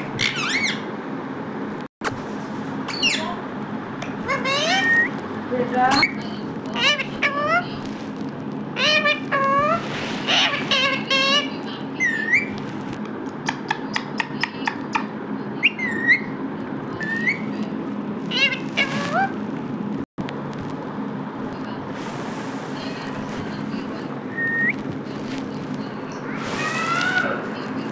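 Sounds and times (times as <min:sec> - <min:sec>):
steady low hum: 0:00.0 - 0:27.9
parakeet shrill whistled calls: 0:00.2 - 0:00.9, 0:02.9 - 0:03.3, 0:04.3 - 0:05.2, 0:08.8 - 0:12.6, 0:15.6 - 0:16.4, 0:17.0 - 0:17.6, 0:26.2 - 0:27.4.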